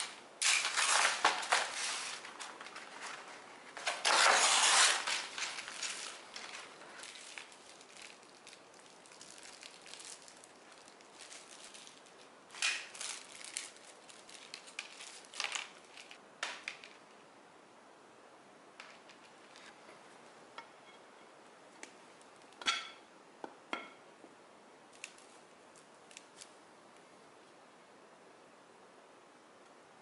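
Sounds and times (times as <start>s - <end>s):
paper envelope tearing: 0.0s - 16.2s
paper rustling: 0.0s - 17.0s
plastic bags crinkling: 0.0s - 17.0s.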